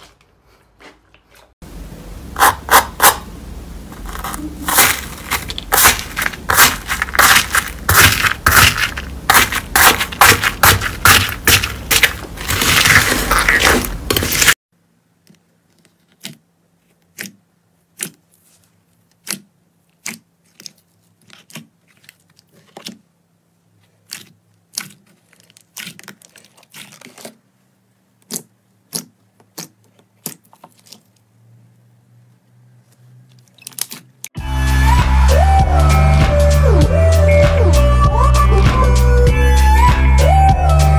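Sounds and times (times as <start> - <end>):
crunchy slime crackling: 4.0 - 14.6, 23.8 - 27.5, 28.2 - 31.3.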